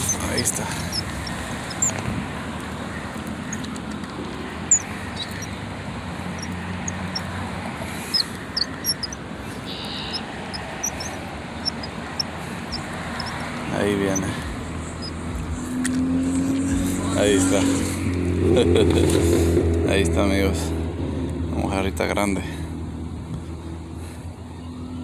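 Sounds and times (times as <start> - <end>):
high bird chirps: 0.0 - 2.0, 4.7 - 5.7, 6.3 - 7.4, 8.0 - 15.3
low rumble of distant traffic: 0.0 - 25.0.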